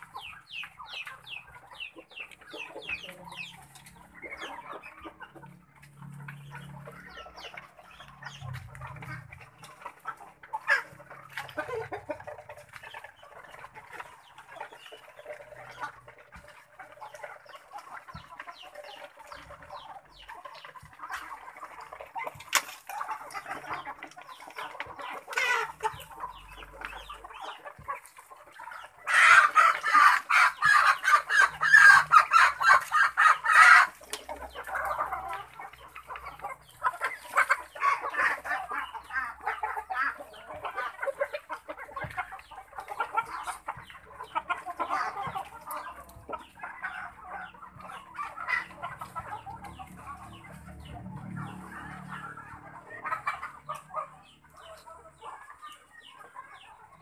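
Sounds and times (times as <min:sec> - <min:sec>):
ducks clucking chatter: 0:00.0 - 0:57.0.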